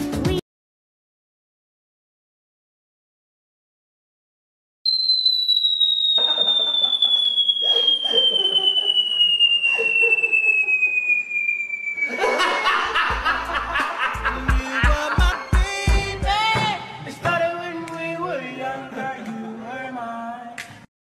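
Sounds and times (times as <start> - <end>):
descending cartoon whistle: 4.9 - 13.7
man laughing: 6.2 - 11.2, 12.1 - 15.8
music with deep beat: 14.2 - 16.8.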